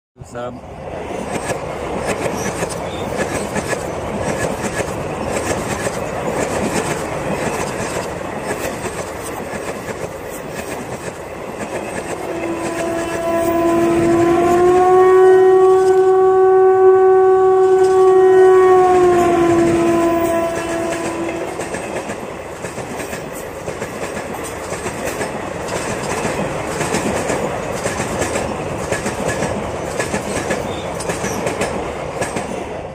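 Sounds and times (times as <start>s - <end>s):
train wheels clacking over rails: 0.9s - 14.8s, 19.0s - 32.9s
locomotive horn: 12.0s - 21.9s.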